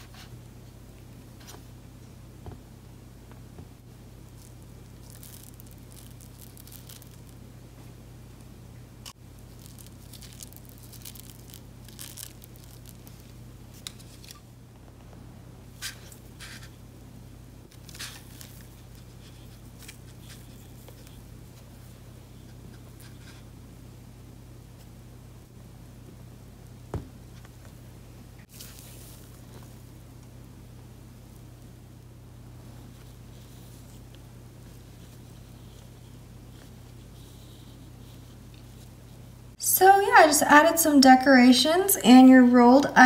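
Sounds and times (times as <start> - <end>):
steady low hum: 0.0 - 43.0
foam beads crackling on slime: 4.2 - 7.4, 9.1 - 14.4, 17.7 - 21.2, 28.5 - 30.0.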